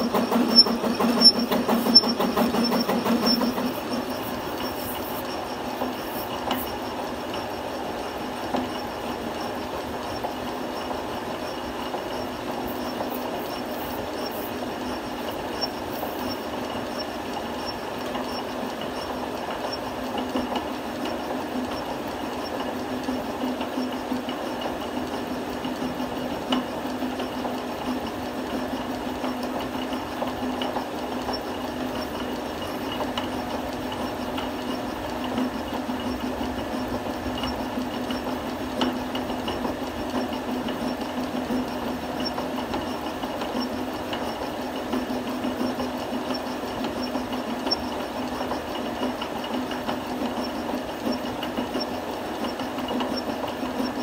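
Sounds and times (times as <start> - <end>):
metal cutting noise: 0.0 - 6.3
lathe humming: 0.0 - 20.3.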